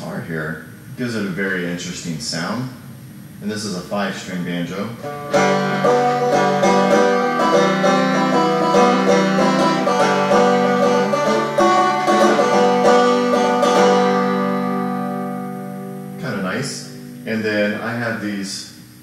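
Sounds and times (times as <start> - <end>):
banjo picking: 5.0 - 17.4.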